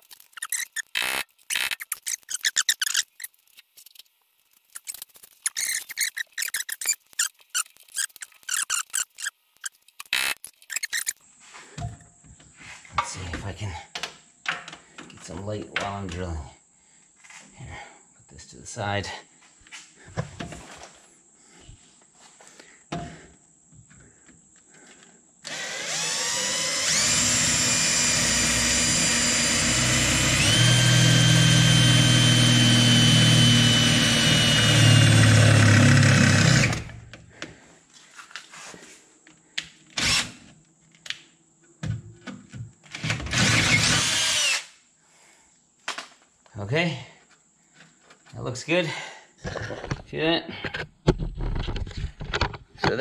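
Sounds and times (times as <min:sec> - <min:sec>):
cordless drill boring into sheet metal: 0:25.4 - 0:36.9, 0:40.0 - 0:40.4, 0:43.0 - 0:44.7.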